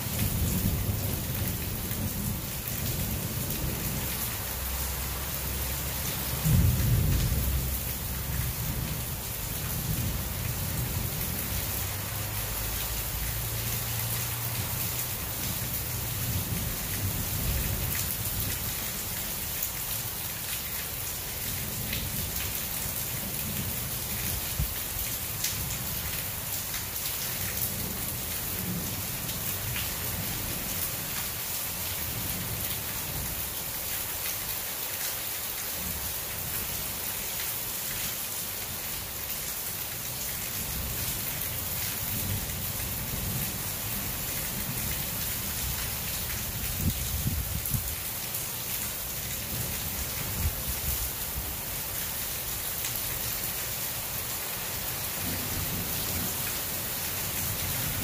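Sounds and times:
heavy rain falling: 0.0 - 58.0
low rumble of thunder: 6.3 - 11.5, 42.1 - 47.9.

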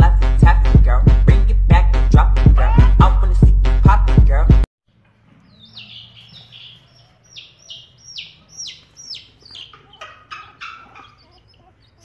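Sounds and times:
baby chick peeping: 5.2 - 12.0.

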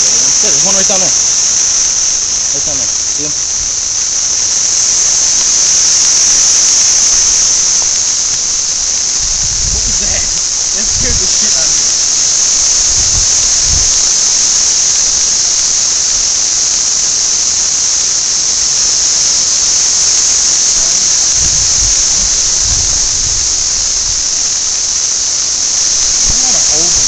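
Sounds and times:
low rumbles: 0.0 - 15.4
cicadas droning: 0.0 - 27.0.

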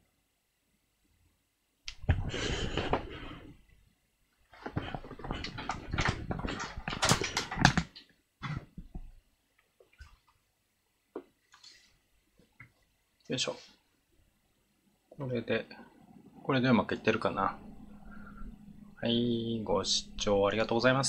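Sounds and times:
rustling and handling noise: 1.9 - 3.8, 4.4 - 10.4.

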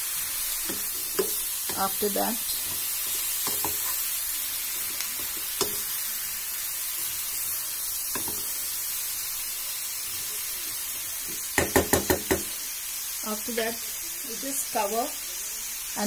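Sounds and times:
vegetables sizzling in a pan: 0.0 - 16.0
wooden spatula knocking pan: 11.3 - 12.5.

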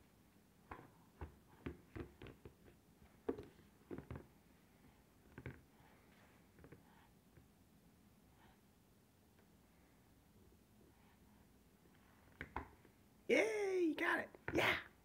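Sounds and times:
rubber balls knocking: 0.6 - 4.3.

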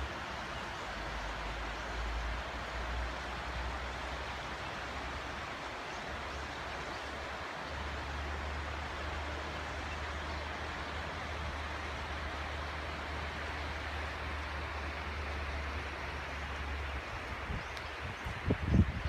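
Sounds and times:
river water rushing: 0.0 - 19.0
wind rumble on microphone: 16.3 - 19.0.

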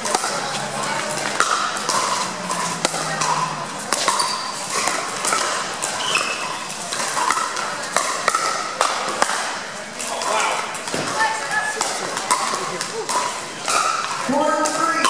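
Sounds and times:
paddles striking pickleball: 0.0 - 15.0.

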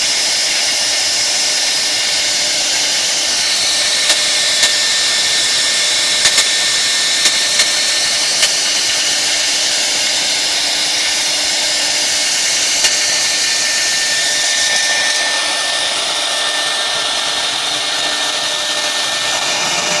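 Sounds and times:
router cutting wood: 0.0 - 20.0
sharp ticks: 6.2 - 6.6.

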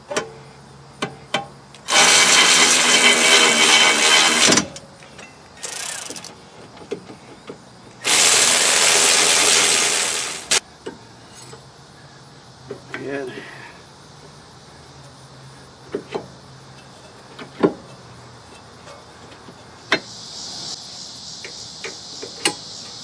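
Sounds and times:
power wrench bursts: 1.8 - 4.8, 5.6 - 6.4, 8.0 - 10.6.

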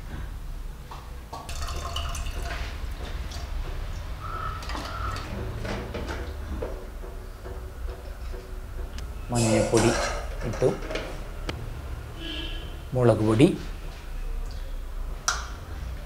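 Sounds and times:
liquid dripping and pouring: 1.3 - 8.4
steel cup and jars clinking: 1.5 - 2.7, 9.4 - 11.0.

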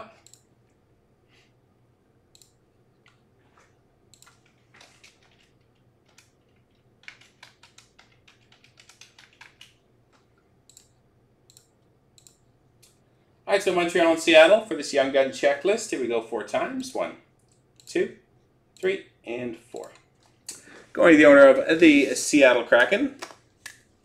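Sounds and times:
computer mouse clicks: 0.2 - 0.5, 2.3 - 3.2, 4.1 - 13.0
computer keyboard clicks: 4.2 - 10.9.

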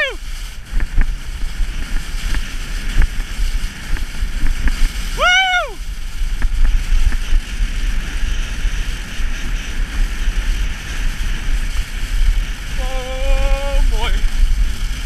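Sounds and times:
skis sliding on snow: 0.0 - 15.0
wind buffeting microphone: 0.0 - 15.0
person calling out long note: 5.2 - 5.8, 12.8 - 14.0.

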